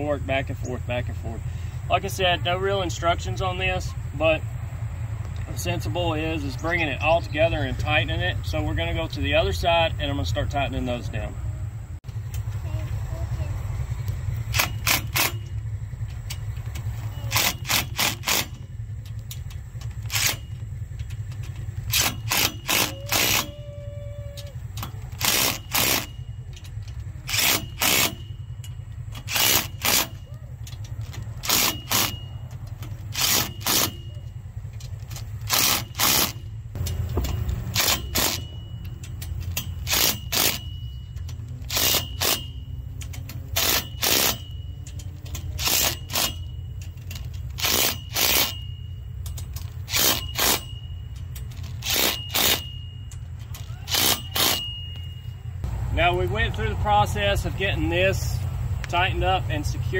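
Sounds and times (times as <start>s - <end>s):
steady low rumble: 0.0s - 59.9s
impact driver bursts: 14.5s - 15.6s, 17.1s - 18.7s, 21.8s - 23.5s, 25.1s - 26.3s, 27.2s - 28.3s, 29.1s - 30.2s, 31.4s - 32.2s, 33.1s - 34.0s, 35.4s - 36.5s, 37.7s - 38.5s, 39.8s - 40.7s, 41.6s - 42.6s, 43.5s - 44.5s, 45.6s - 46.5s, 47.6s - 48.6s, 49.8s - 50.7s, 51.7s - 52.8s, 53.8s - 54.8s.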